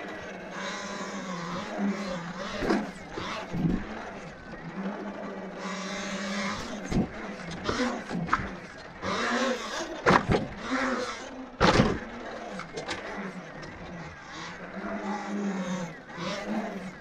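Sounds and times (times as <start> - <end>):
electric motor whine: 0.0 - 17.0
sharp knocks over bumps: 10.0 - 10.6, 11.6 - 12.1.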